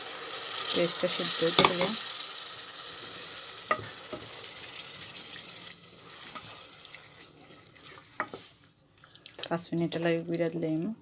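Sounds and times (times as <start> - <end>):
paste sizzling in a saucepan: 0.0 - 11.0
wooden spoon knocking on pan: 1.6 - 2.0, 3.7 - 4.3, 8.2 - 8.5.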